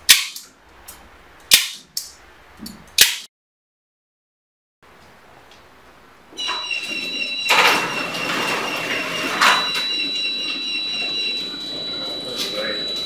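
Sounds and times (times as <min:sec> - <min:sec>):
garage door motor whine: 0:06.3 - 0:13.0.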